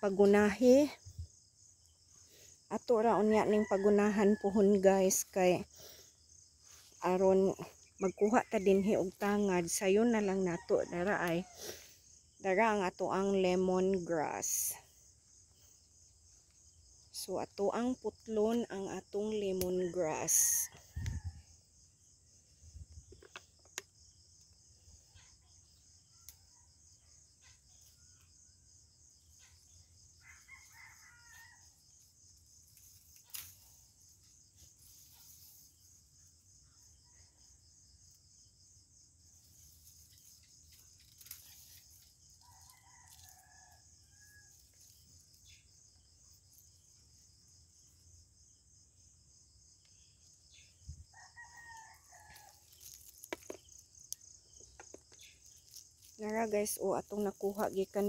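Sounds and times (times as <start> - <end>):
crickets chirping: 0.0 - 58.0
rooster crowing: 30.2 - 31.8, 51.1 - 52.6.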